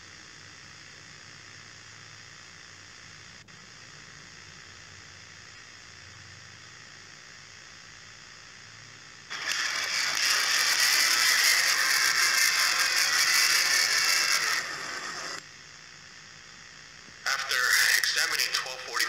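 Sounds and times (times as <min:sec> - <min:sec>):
loud mechanical rattling clatter: 0:09.3 - 0:15.4.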